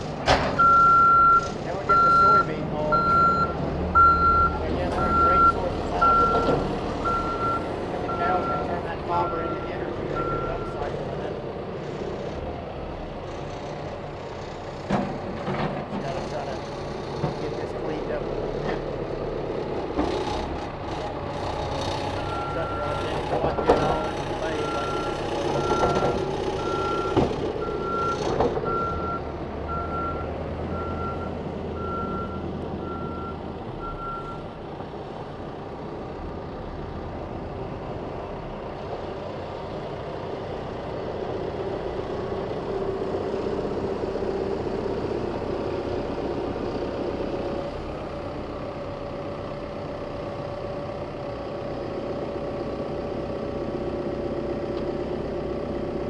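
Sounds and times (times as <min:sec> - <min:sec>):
diesel engine running: 0:00.0 - 0:56.0
reversing alarm beeping: 0:00.6 - 0:10.9, 0:22.3 - 0:34.4.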